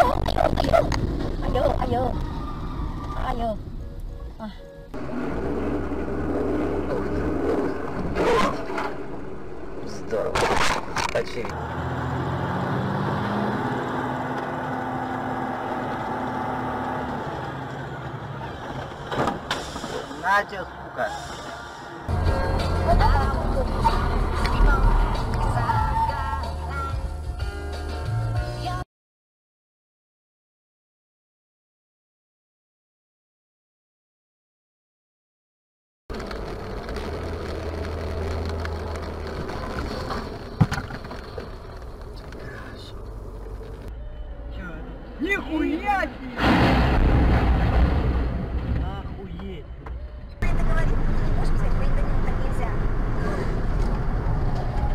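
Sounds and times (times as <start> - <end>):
car engine from inside cabin: 4.0 - 10.3
car driving on wet road: 5.0 - 26.2, 36.1 - 43.9, 50.4 - 54.9.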